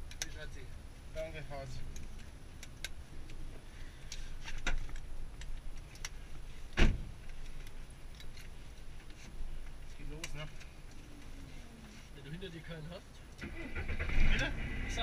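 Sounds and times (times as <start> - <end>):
loud thump: 6.8 - 7.1.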